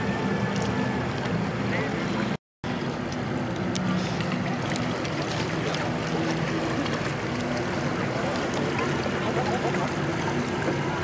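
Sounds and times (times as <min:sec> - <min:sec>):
boat engines humming: 0:00.0 - 0:11.0
people talking: 0:08.0 - 0:11.0.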